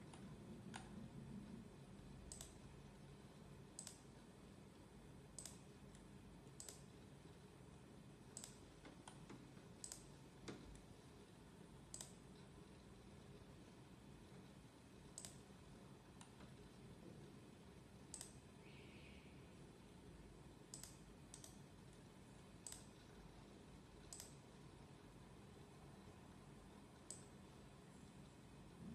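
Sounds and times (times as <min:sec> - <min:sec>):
faint computer mouse clicks: 0:02.3 - 0:02.6, 0:03.8 - 0:04.1, 0:05.4 - 0:06.9, 0:08.3 - 0:10.8, 0:11.9 - 0:12.2, 0:15.1 - 0:15.4, 0:18.1 - 0:18.4, 0:20.7 - 0:21.6, 0:22.6 - 0:23.0, 0:24.1 - 0:24.4, 0:27.0 - 0:27.3.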